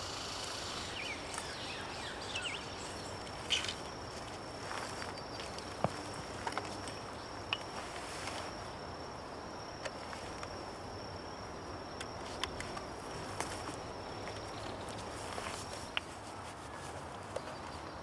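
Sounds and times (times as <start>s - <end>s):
insect trilling: 0.0s - 15.5s
twigs or leaves clicking: 3.2s - 8.4s.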